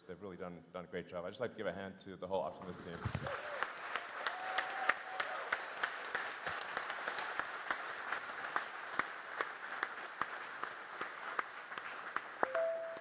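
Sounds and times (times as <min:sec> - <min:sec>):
audience applauding: 0:02.8 - 0:13.0
sharp individual claps: 0:05.8 - 0:13.0.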